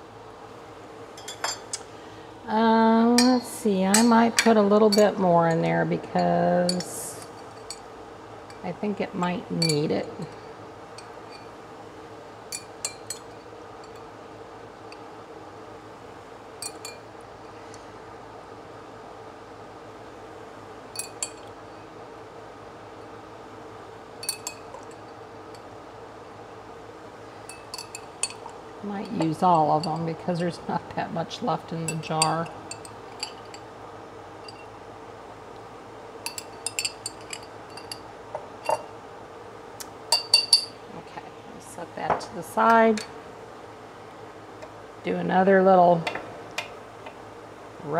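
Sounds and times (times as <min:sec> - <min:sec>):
fork clinking against glass jar: 0:01.2 - 0:01.8, 0:12.5 - 0:13.3, 0:24.2 - 0:25.0, 0:27.5 - 0:30.1, 0:31.9 - 0:33.6, 0:34.4 - 0:34.7, 0:36.3 - 0:38.0, 0:40.1 - 0:40.8.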